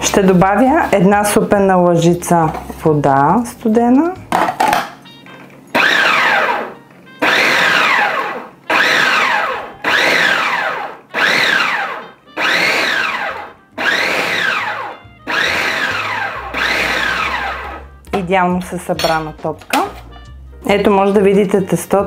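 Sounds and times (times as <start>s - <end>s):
food processor motor pulsing: 5.7s - 17.9s.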